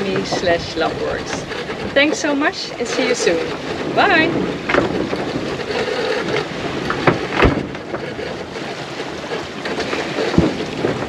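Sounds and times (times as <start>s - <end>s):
short knocks: 0.0s - 8.3s
wind and sea rushing: 0.0s - 11.0s.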